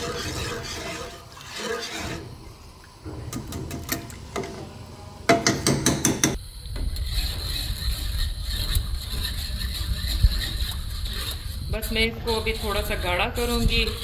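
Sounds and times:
whisk scraping metal pot: 0:00.0 - 0:02.4, 0:06.8 - 0:14.0.

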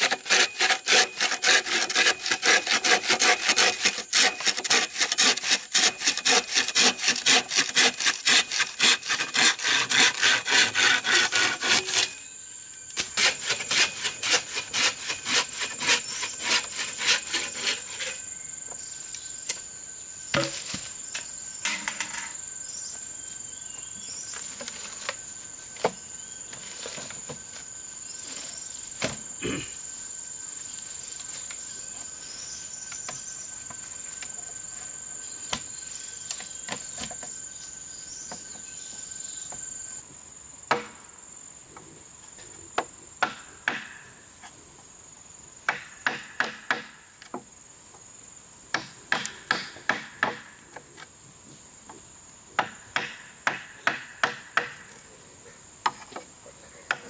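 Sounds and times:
high-pitched insect drone: 0:15.0 - 0:40.0.

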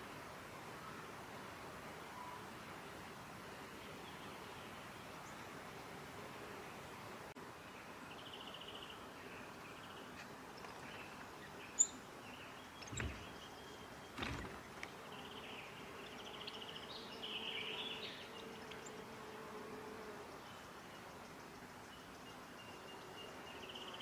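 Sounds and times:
distant bird trills and calls: 0:08.1 - 0:19.0
soft thumps: 0:12.8 - 0:13.4.

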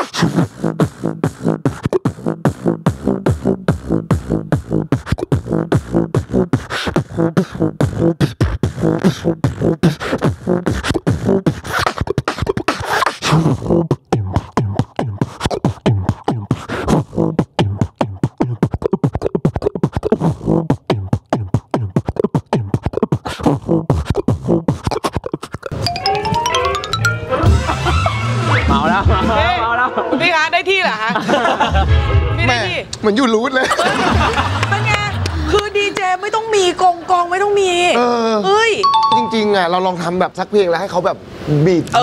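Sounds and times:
person beatboxing: 0:00.0 - 0:25.8.

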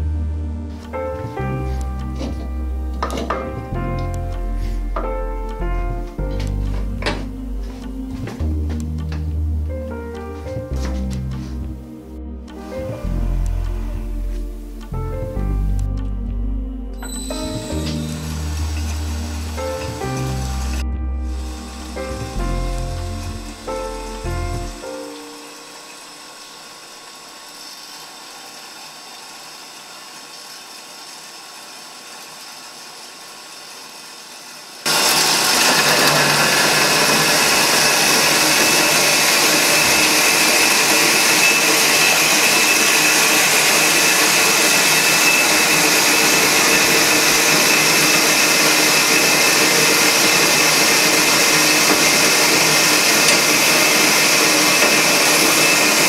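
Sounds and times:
coolant trickling hiss: 0:17.4 - 0:20.8, 0:21.4 - 0:35.6
bandsaw cutting metal: 0:34.9 - 0:56.0.

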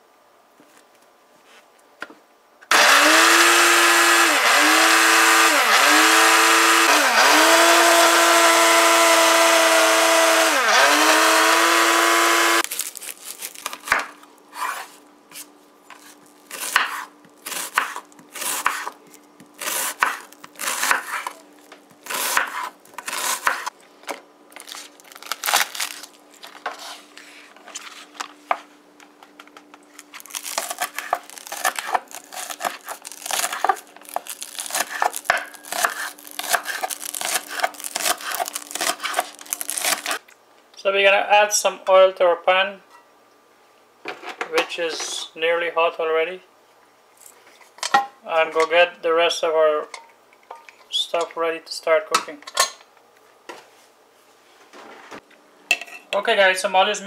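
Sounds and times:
blender running: 0:02.7 - 0:12.6
knife slicing on wooden board: 0:14.5 - 0:19.0, 0:19.6 - 0:21.4, 0:22.1 - 0:23.7, 0:34.7 - 0:40.1.

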